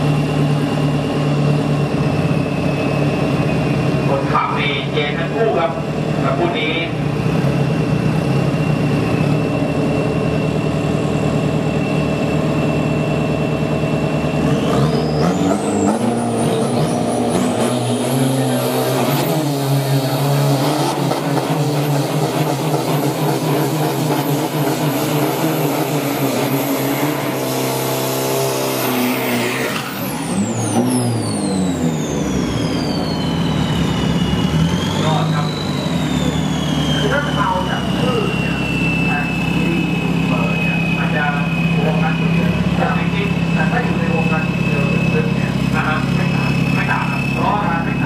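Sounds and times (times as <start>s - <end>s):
pickup engines idling and revving: 0.0s - 48.0s
truck pulling away: 0.0s - 48.0s
turbo whistle: 29.9s - 45.4s, 46.2s - 48.0s.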